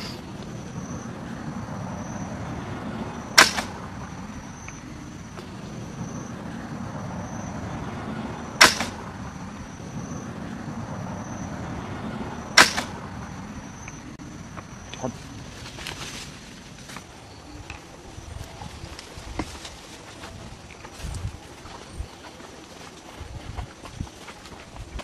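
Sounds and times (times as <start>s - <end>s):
crossbow shot snapping: 3.4s - 3.8s, 8.6s - 9.0s, 12.6s - 13.0s.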